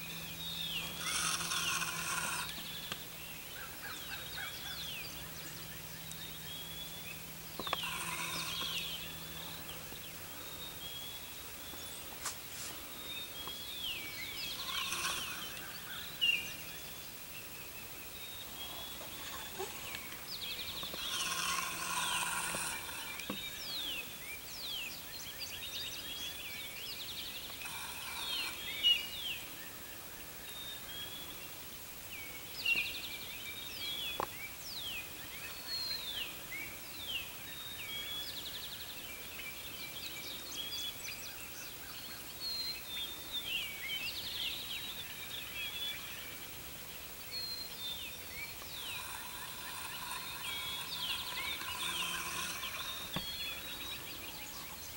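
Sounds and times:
songbirds chirping and singing: 0.0s - 54.9s
wild turkey calling: 0.8s - 3.0s, 7.6s - 9.6s, 13.4s - 16.9s, 48.5s - 54.7s.

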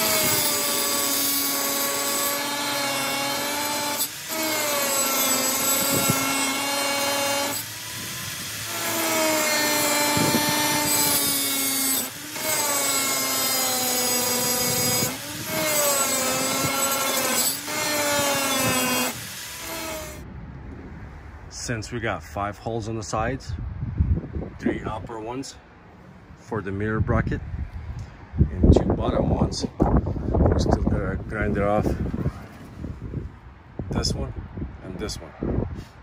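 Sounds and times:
angle grinder cutting metal: 0.0s - 20.2s.

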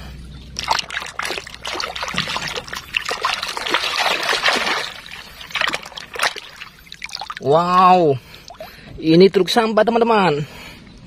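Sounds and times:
water splashing and trickling: 0.0s - 9.1s
hand scrubbing toy underwater: 0.6s - 7.5s.

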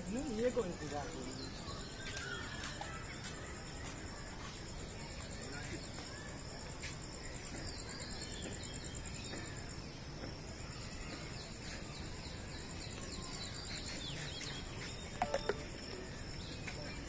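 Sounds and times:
bird chirps: 0.0s - 17.0s
cricket trilling: 0.0s - 17.0s.

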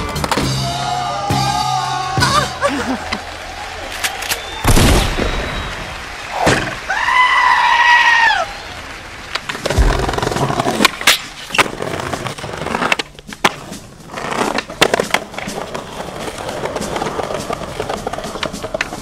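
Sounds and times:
skateboard wheels rolling on concrete: 5.2s - 19.0s
skateboard clacks: 9.2s - 19.0s.

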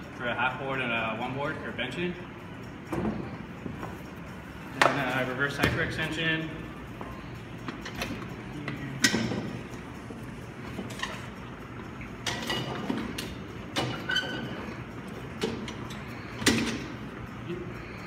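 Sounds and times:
metal machine clanking: 7.8s - 9.7s, 12.2s - 17.1s.

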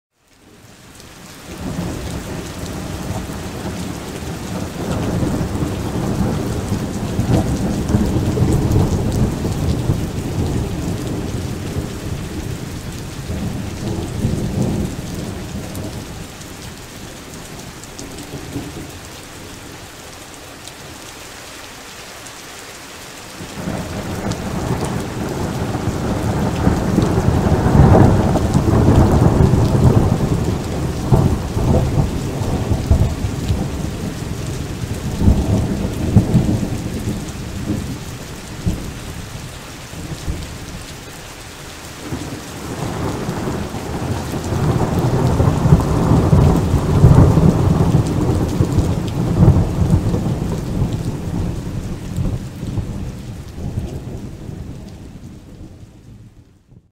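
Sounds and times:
steady rain: 0.1s - 56.9s
thunder rolling: 23.6s - 34.2s, 42.6s - 53.0s.

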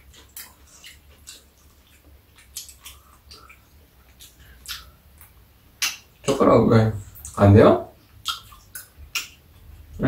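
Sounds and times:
chewing and mouth smacks: 0.0s - 6.4s, 7.0s - 7.4s, 8.0s - 10.0s.

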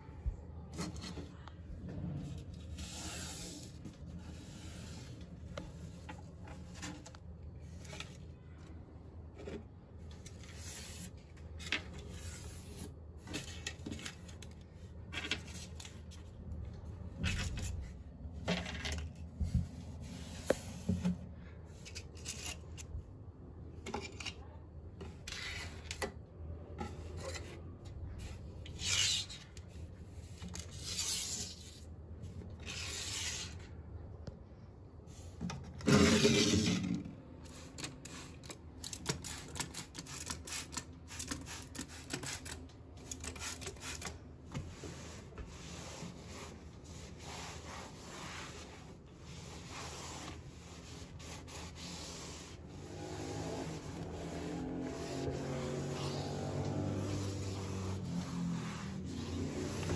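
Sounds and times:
towel wiping a shelf: 2.2s - 8.1s, 19.3s - 21.8s, 43.1s - 59.9s.

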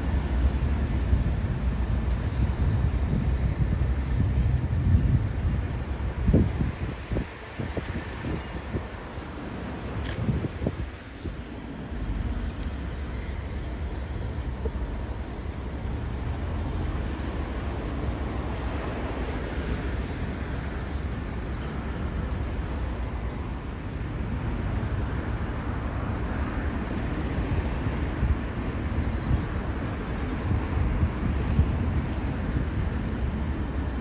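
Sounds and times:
wind buffeting microphone: 0.0s - 12.4s, 24.0s - 34.0s.

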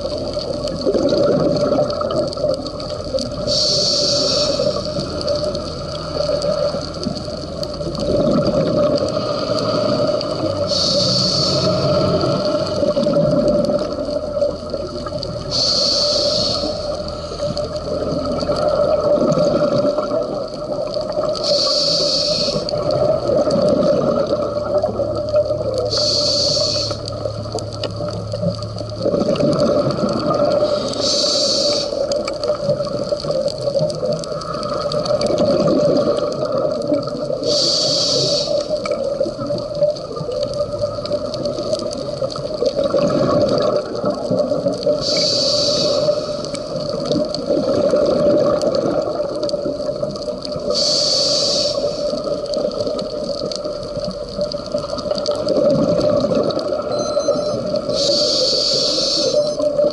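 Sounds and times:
exhaled air bubbling: 0.0s - 59.9s
steady hum: 2.6s - 8.4s, 9.1s - 20.6s, 21.3s - 33.2s, 56.9s - 59.9s
regulator breath hiss: 3.4s - 5.0s, 9.2s - 12.2s, 15.5s - 17.5s, 21.4s - 22.8s, 25.9s - 27.1s, 30.6s - 32.1s, 37.4s - 38.8s, 45.0s - 46.8s, 50.7s - 52.2s, 57.9s - 59.5s.

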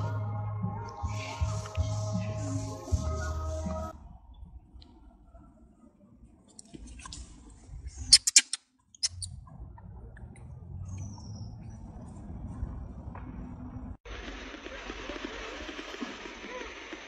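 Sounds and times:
sharp high-pitched squeaks: 8.0s - 9.4s
faint low rumble: 9.2s - 15.7s.

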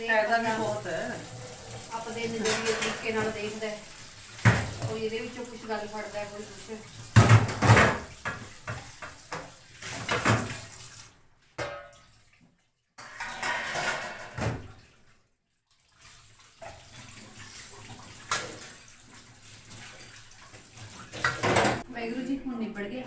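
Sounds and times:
steel utensils clattering: 0.5s - 3.9s, 13.0s - 14.6s.

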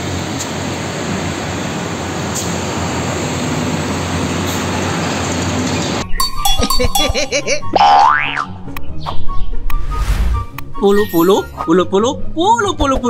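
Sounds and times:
road traffic rumble: 0.0s - 7.2s
music: 6.0s - 13.0s.

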